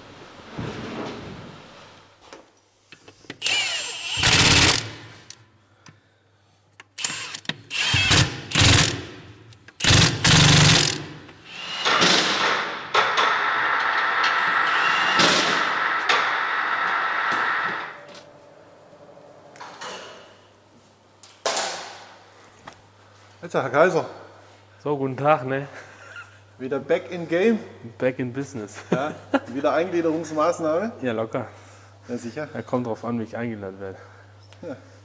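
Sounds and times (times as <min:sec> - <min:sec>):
loud knocks and clatters: 0:11.9 - 0:13.5.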